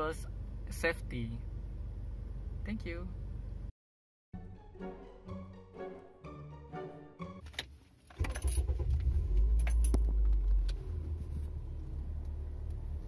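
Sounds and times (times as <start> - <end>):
background music: 4.4 - 7.5.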